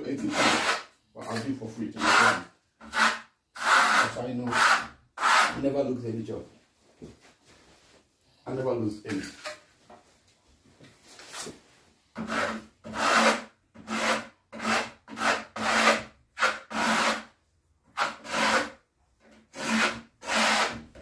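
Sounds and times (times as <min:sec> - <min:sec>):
steel trowel scraping plaster: 0:00.1 - 0:05.6, 0:12.2 - 0:17.3, 0:18.0 - 0:18.8, 0:19.5 - 0:20.8.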